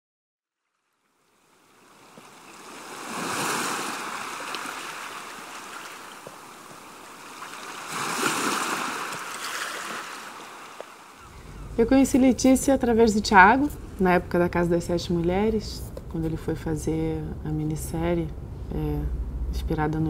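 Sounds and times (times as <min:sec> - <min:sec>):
ocean waves washing in: 0:01.4 - 0:11.8.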